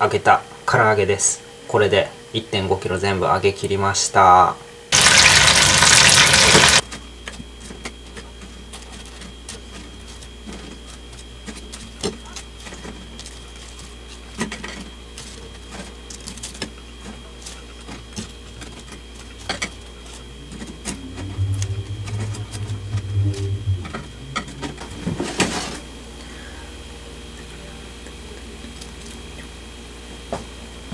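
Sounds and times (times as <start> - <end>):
loud burst of noise: 4.9 - 6.8
low hum: 19.4 - 26.8.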